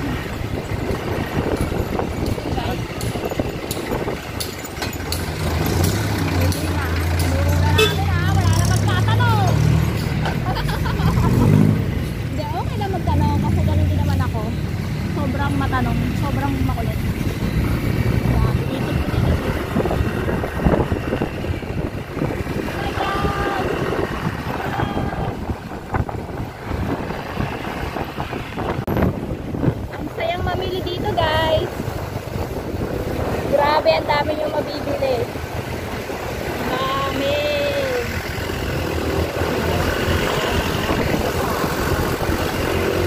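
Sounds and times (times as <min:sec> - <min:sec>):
wind buffeting microphone: 0:00.0 - 0:09.5, 0:10.4 - 0:43.0
motorcycle engine running: 0:00.0 - 0:27.2
street traffic: 0:00.0 - 0:43.0.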